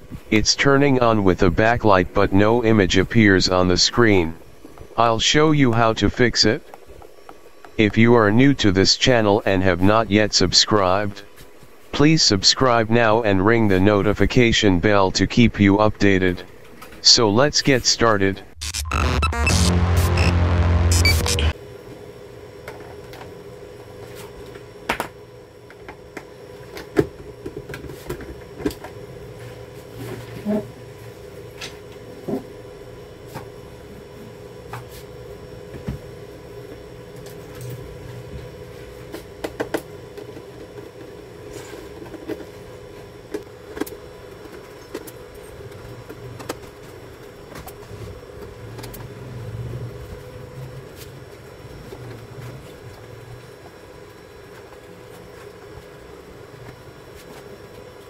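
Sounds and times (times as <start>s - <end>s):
steady hum: 0.0s - 26.9s.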